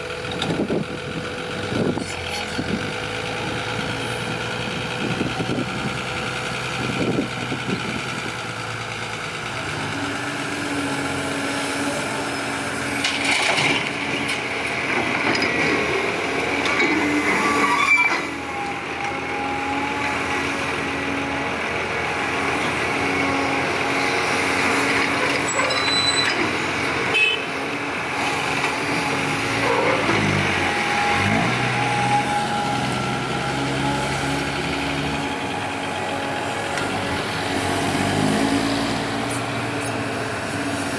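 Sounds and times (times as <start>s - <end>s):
dump truck engine idling: 0.0s - 13.0s
excavator diesel engine: 0.0s - 40.9s.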